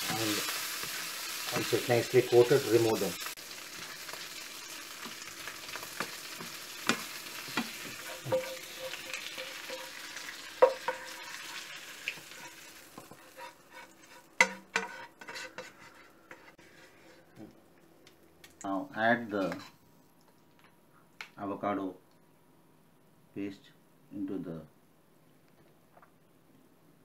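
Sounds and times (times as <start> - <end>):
prawns sizzling in a frying pan: 0.0 - 16.5
spatula scraping and knocking pan: 5.0 - 17.3, 19.4 - 19.7.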